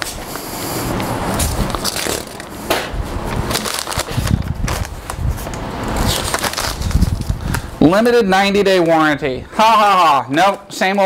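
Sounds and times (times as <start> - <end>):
paper booklet rustling: 3.3 - 8.3.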